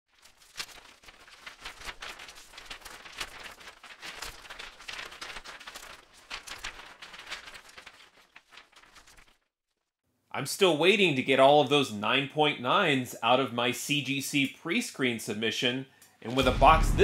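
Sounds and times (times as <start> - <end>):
sharp noisy hits and crackles: 16.4 - 17.0.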